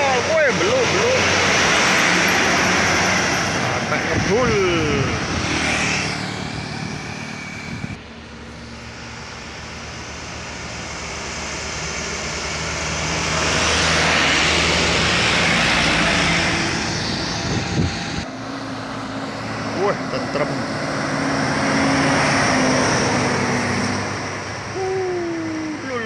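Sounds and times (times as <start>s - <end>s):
truck engines pulling uphill: 0.0s - 26.0s.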